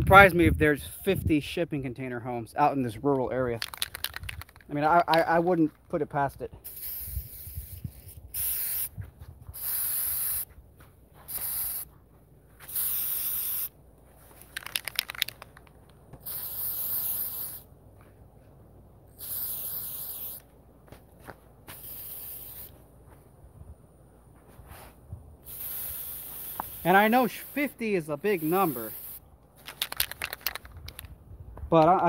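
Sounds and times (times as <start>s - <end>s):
aerosol can rattle: 3.6s - 5.2s, 14.4s - 17.6s, 28.4s - 31.1s
aerosol spray hissing bursts: 6.6s - 9.0s, 9.6s - 10.5s, 11.3s - 11.9s, 12.6s - 13.7s, 16.2s - 17.7s, 19.2s - 20.4s, 21.7s - 22.8s, 25.4s - 29.2s.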